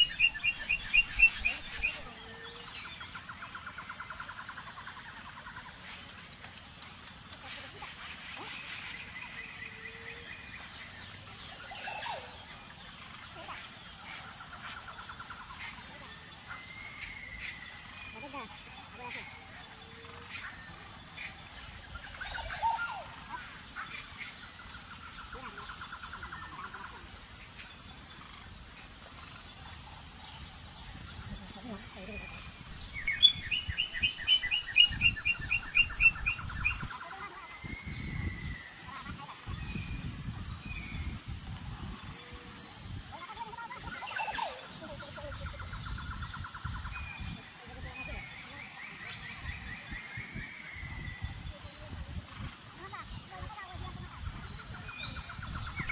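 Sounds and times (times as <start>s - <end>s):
insects calling: 0.0s - 55.9s
small birds chirping: 0.0s - 55.9s
wind rumble on microphone: 30.8s - 44.0s, 44.8s - 55.9s.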